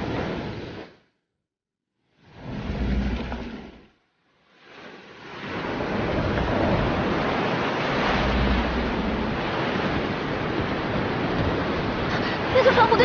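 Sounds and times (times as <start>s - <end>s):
rushing wind: 4.7s - 13.0s.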